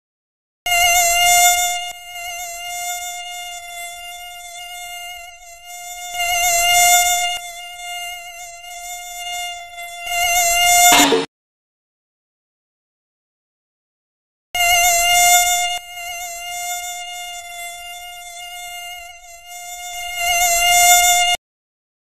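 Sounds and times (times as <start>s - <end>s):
mosquito whine: 0.7s - 11.3s, 14.6s - 21.4s.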